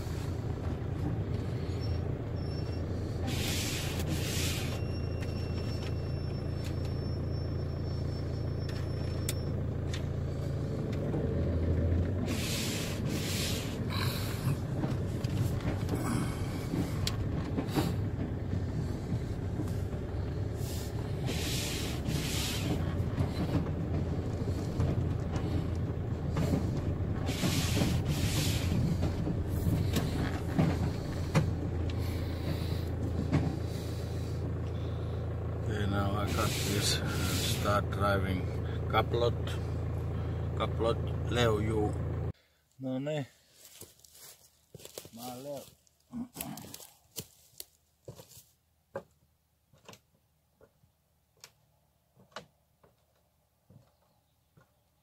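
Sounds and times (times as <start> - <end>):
vehicle engine idling: 0.0 - 55.0
swishing scrapes: 27.2 - 30.2
footsteps on wooden planks: 43.6 - 49.2.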